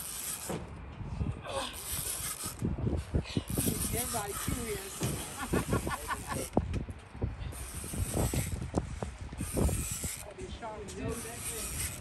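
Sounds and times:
fishing reel clicking: 0.0 - 0.5, 1.8 - 2.7, 3.4 - 6.6, 7.5 - 10.4, 11.1 - 12.0
fishing reel hissing: 0.0 - 0.5, 1.8 - 2.7, 3.4 - 6.6, 7.5 - 10.4, 11.1 - 12.0.

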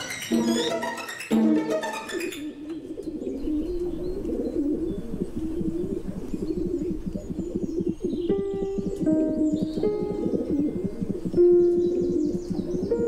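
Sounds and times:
plucked-string music: 0.0 - 3.7, 8.1 - 13.0
pigeons cooing: 2.1 - 13.0.

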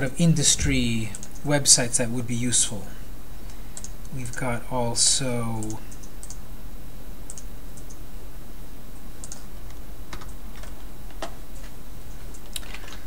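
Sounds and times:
steady low hum: 0.0 - 13.0
computer mouse and keyboard clicks: 10.1 - 11.4.

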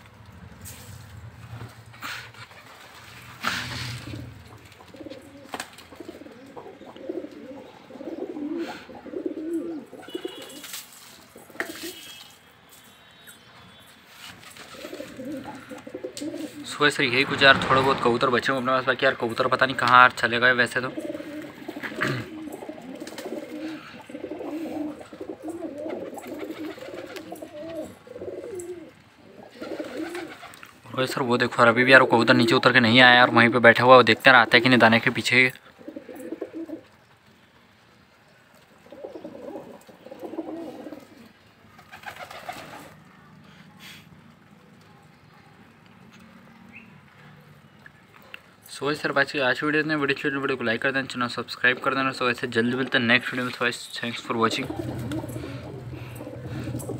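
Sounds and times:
pigeons cooing: 1.9 - 10.7, 14.6 - 16.8, 20.8 - 31.2, 35.7 - 37.0, 38.7 - 43.0, 54.0 - 56.9.

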